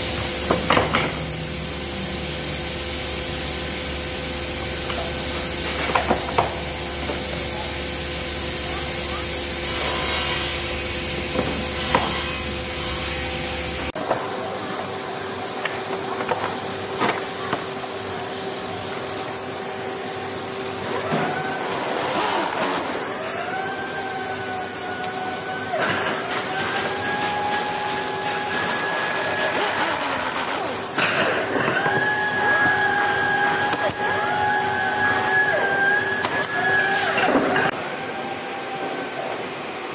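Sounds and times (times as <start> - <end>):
steady machine hum: 0.0 - 39.9
power drill whine: 20.4 - 38.9.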